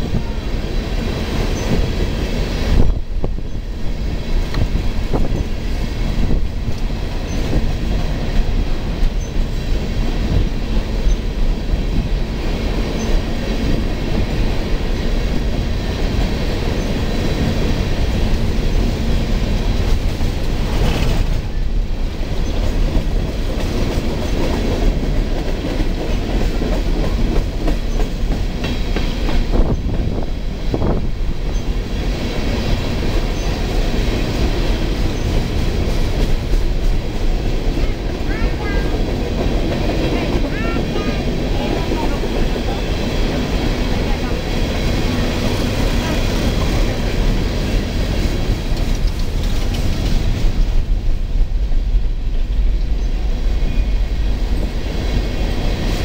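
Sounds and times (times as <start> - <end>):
freight train rolling past: 0.0 - 56.0.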